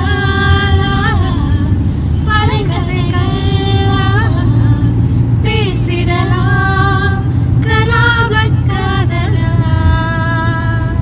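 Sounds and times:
woman singing: 0:00.0 - 0:04.9, 0:05.5 - 0:11.0
car cabin rumble: 0:00.0 - 0:11.0.

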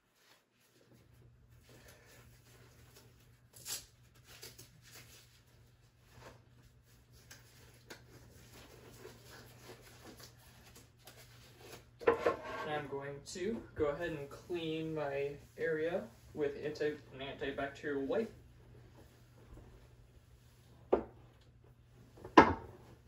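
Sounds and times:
low room hum: 0:00.0 - 0:23.0
gloves rustling and clicking: 0:07.1 - 0:12.0.

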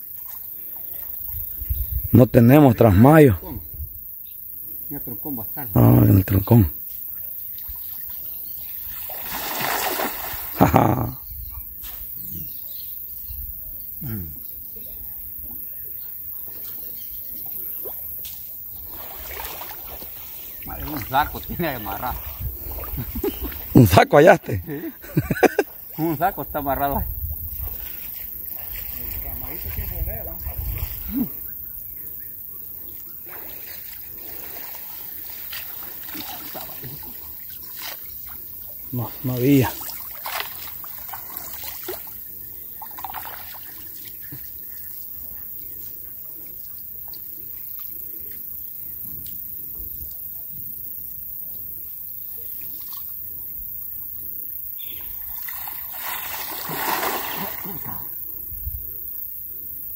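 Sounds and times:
river water lapping: 0:07.4 - 0:11.2, 0:16.4 - 0:26.3, 0:27.7 - 0:46.1, 0:55.1 - 0:58.2
water running off net: 0:08.9 - 0:11.0, 0:33.4 - 0:38.0, 0:39.4 - 0:42.2, 0:55.4 - 0:57.9.

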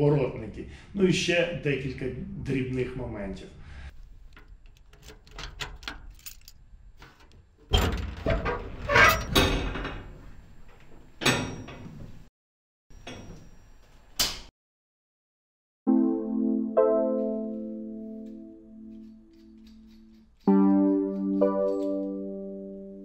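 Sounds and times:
keys jangling at padlock: 0:04.6 - 0:06.6
metal door grating open: 0:07.7 - 0:12.3.

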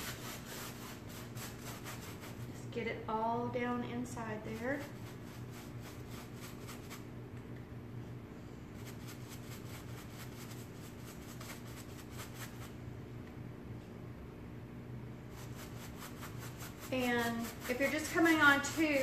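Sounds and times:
paintbrush dabbing fabric: 0:00.0 - 0:02.6, 0:04.5 - 0:07.0, 0:08.8 - 0:12.7, 0:15.3 - 0:19.0.

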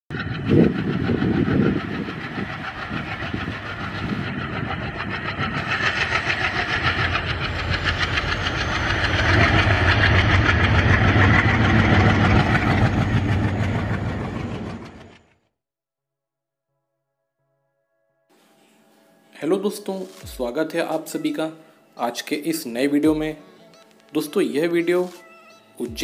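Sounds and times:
locomotive engine rumble: 0:00.1 - 0:15.2
train wheels clattering on rails: 0:00.2 - 0:15.2.

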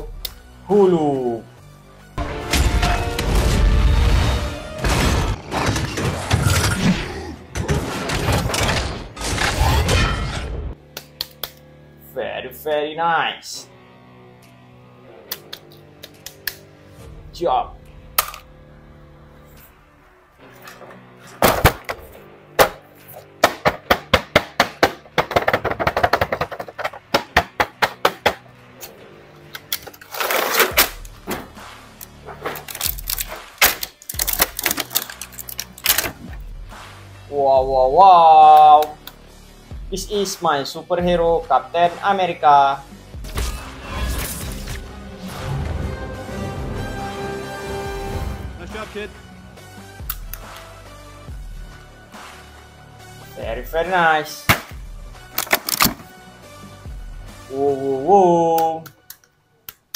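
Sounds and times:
faint background music: 0:00.0 - 0:59.9
debris smashing: 0:02.5 - 0:10.7
clicks and knocks on plastic: 0:23.6 - 0:28.4.

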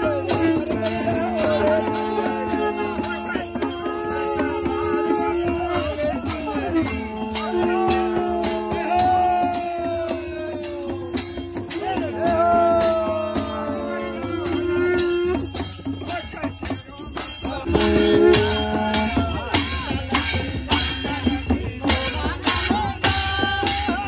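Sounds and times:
held drone notes: 0:00.0 - 0:15.7, 0:17.7 - 0:19.8
drums beating: 0:00.0 - 0:24.0
hand cymbal: 0:00.0 - 0:24.0
wind instrument melody: 0:00.0 - 0:24.0.

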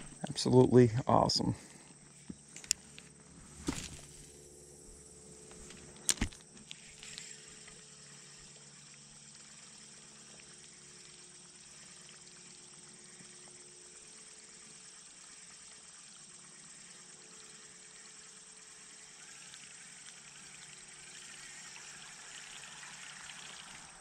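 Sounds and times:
insects droning: 0:00.0 - 0:24.0
sharp click: 0:05.5 - 0:07.2
fishing reel cranking: 0:05.5 - 0:08.4.

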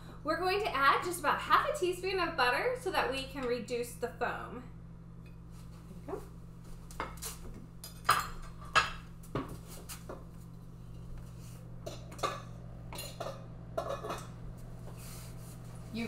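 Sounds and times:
steady low hum: 0:00.0 - 0:16.0
pot and lid clinking: 0:11.9 - 0:14.4.

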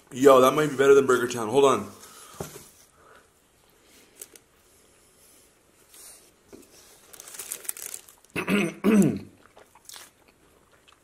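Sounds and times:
faint crinkling: 0:01.8 - 0:08.5
man coughing throat sounds: 0:08.4 - 0:09.4.

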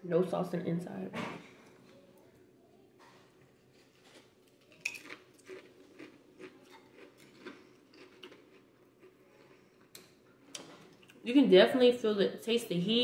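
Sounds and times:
crisp bitten with crunch: 0:03.8 - 0:09.6
chewing crunches: 0:03.8 - 0:11.2.

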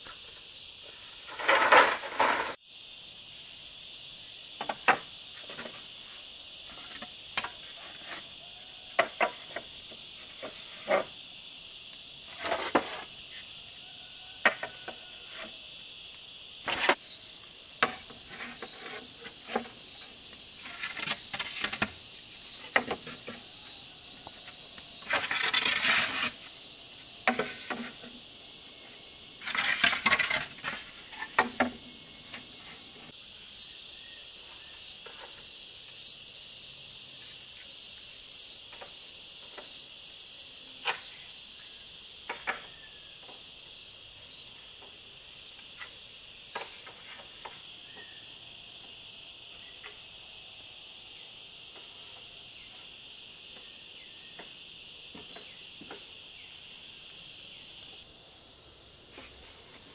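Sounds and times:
high-pitched insect drone: 0:00.0 - 0:46.8
pulsing insect call: 0:00.0 - 0:59.9.

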